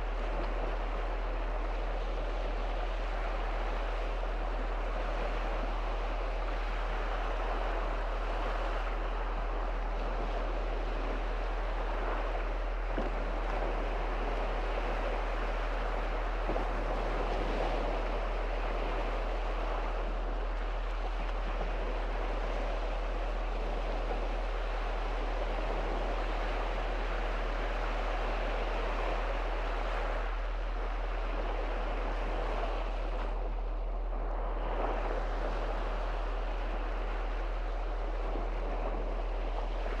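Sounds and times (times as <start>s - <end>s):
waves washing onto beach: 0.0s - 40.0s
low rumble: 30.3s - 40.0s.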